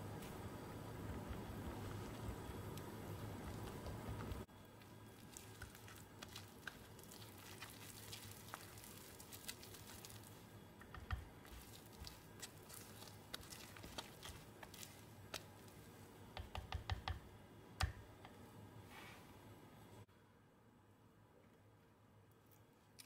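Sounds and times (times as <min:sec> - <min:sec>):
whisk squishing batter: 0:01.0 - 0:18.0
whisk tapping bowl: 0:10.8 - 0:15.6, 0:16.3 - 0:18.3.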